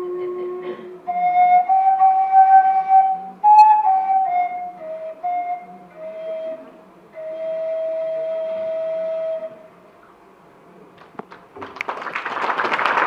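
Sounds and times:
flute long note: 0.0s - 9.8s
audience clapping: 11.0s - 13.0s.

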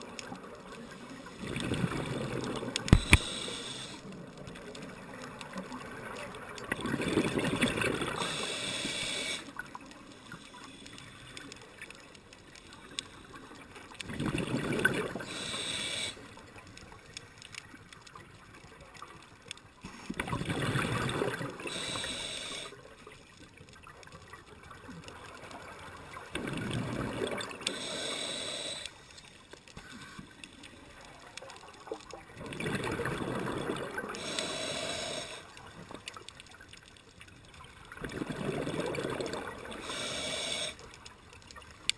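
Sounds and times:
exhaled bubbles gurgling: 0.0s - 17.1s, 20.1s - 22.9s, 24.3s - 29.0s, 30.7s - 41.8s
regulator hiss: 2.9s - 4.1s, 8.2s - 9.5s, 15.2s - 16.3s, 21.7s - 22.8s, 27.7s - 29.0s, 34.2s - 35.5s, 39.8s - 40.8s.

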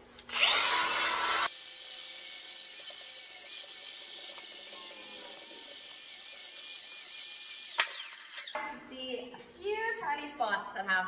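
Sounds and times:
angle grinder grinding metal: 0.3s - 8.6s.

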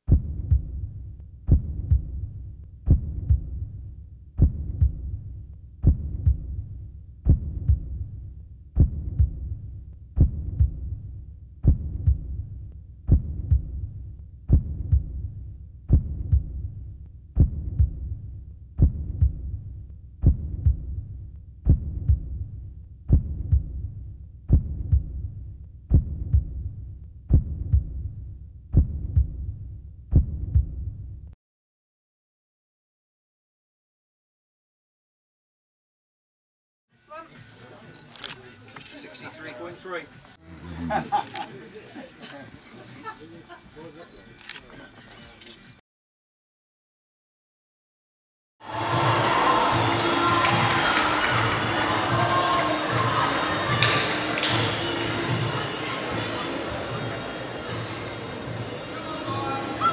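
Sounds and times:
heartbeat-like thudding: 0.0s - 31.4s.

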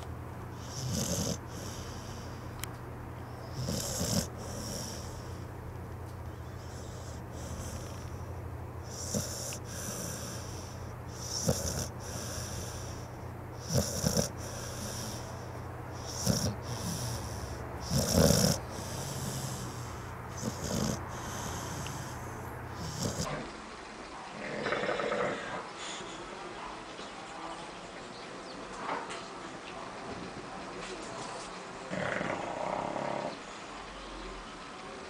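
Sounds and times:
dog snoring: 0.6s - 2.4s, 3.2s - 5.5s, 6.4s - 23.4s.

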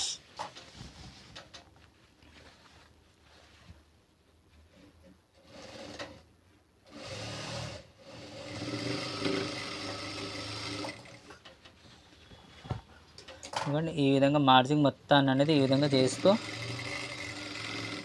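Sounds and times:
sewing machine stitching: 5.4s - 6.2s, 6.9s - 11.3s, 15.5s - 18.0s.

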